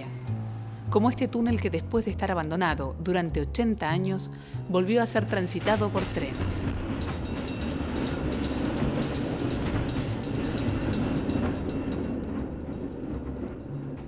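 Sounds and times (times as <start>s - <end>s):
passenger train rumbling past: 0.0s - 14.0s
rail clicks: 4.8s - 14.0s.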